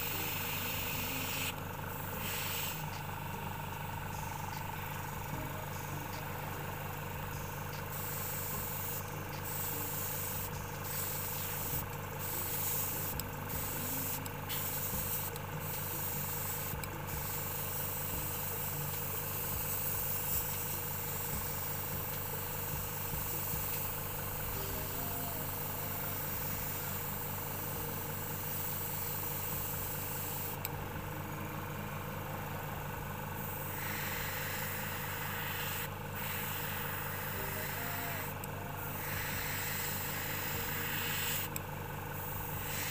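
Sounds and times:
small motor humming: 0:00.0 - 0:42.9.

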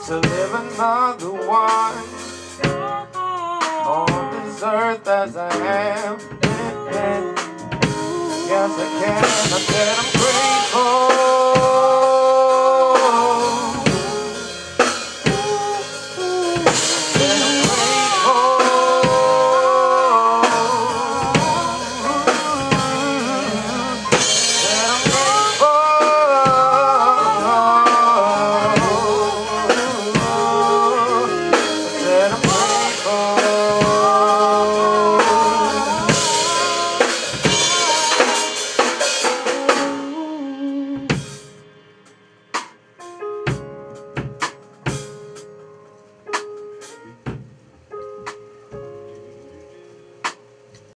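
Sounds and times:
drum kit: 0:00.0 - 0:51.0
trumpet: 0:04.8 - 0:41.5
electric bass: 0:05.3 - 0:38.8.

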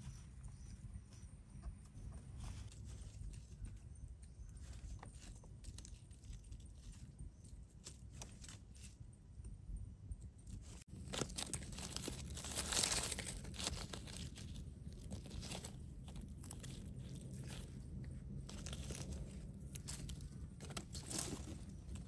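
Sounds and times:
dry leaves crackling and rustling: 0:04.5 - 0:09.0, 0:10.7 - 0:22.0.

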